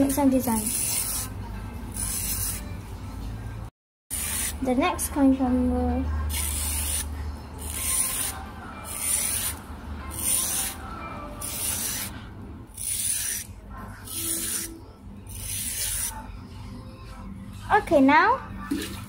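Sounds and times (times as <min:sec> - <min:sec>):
fork scraping cucumber: 0:07.6 - 0:10.8.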